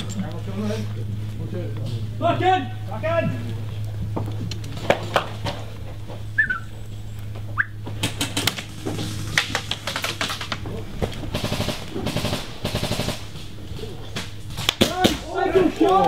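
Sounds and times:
airsoft guns firing: 8.0 - 16.0.

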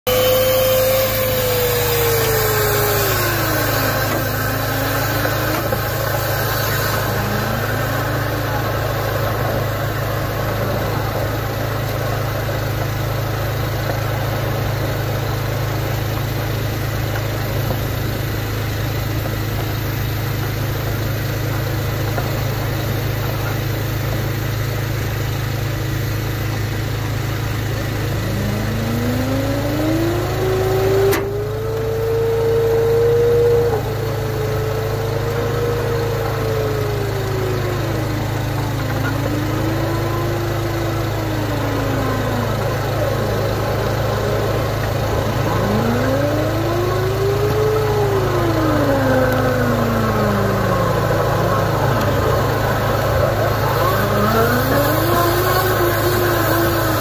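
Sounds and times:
compressed air blowing: 0.1 - 11.2
machine motor hum: 0.1 - 57.0
sliding pitch tone: 27.8 - 57.0.

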